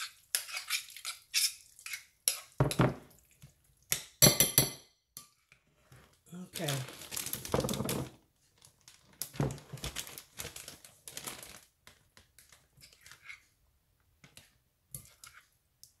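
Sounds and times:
plastic bag crinkling: 0:06.3 - 0:12.6.

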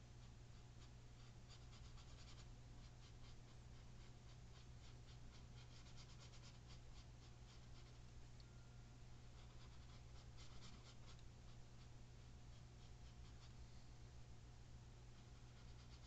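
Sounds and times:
low steady hum: 0:00.0 - 0:16.0
paintbrush scratching on canvas: 0:15.2 - 0:16.0.

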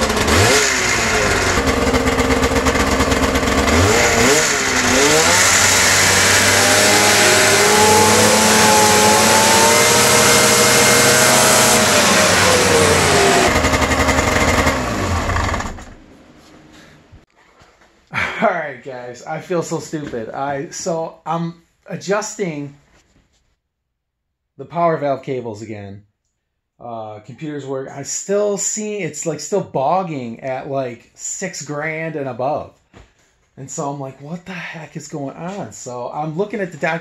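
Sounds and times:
snowmobile engine revving: 0:00.0 - 0:16.0.

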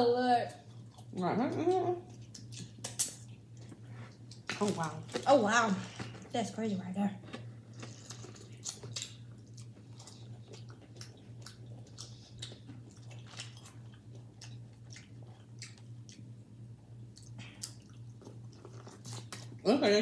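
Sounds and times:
steady low hum: 0:00.0 - 0:20.0
chewing and biting: 0:02.1 - 0:05.3, 0:07.3 - 0:19.6.

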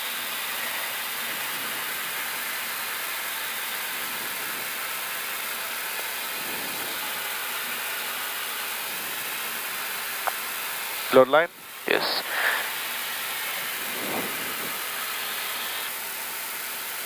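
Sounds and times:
cockpit airflow and engine rush: 0:00.0 - 0:17.0.

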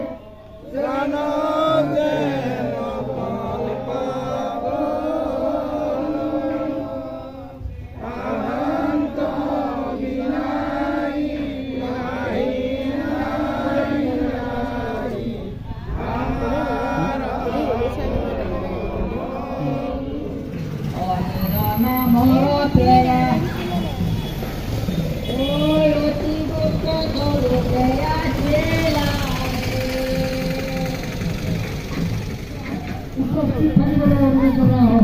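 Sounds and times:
group chanting a prayer: 0:00.0 - 0:21.5.

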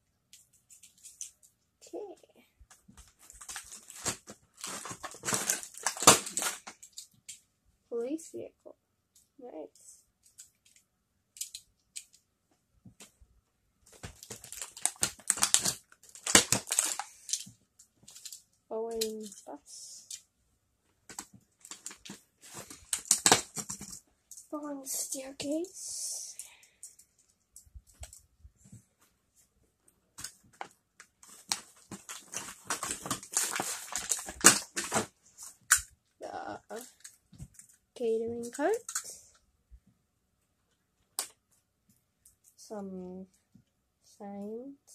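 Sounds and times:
plastic packaging tray rustling: 0:03.2 - 0:07.1, 0:13.9 - 0:19.5, 0:21.1 - 0:24.0, 0:30.2 - 0:35.8.

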